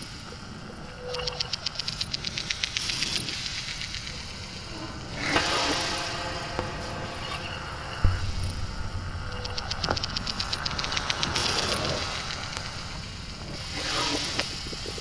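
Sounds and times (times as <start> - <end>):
hiss: 0.0 - 15.0
low hum: 0.0 - 15.0
rapid ticking: 1.0 - 4.6, 9.2 - 12.9.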